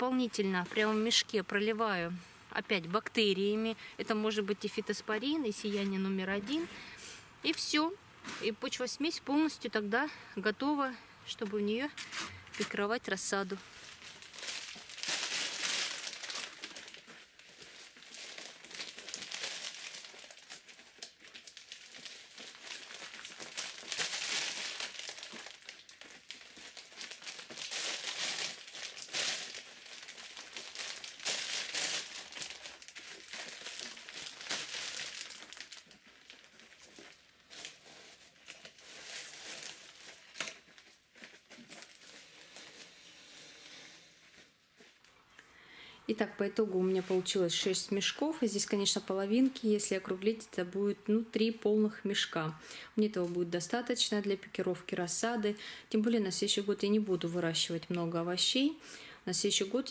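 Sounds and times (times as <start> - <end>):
plastic sacks rustling: 13.4 - 45.1.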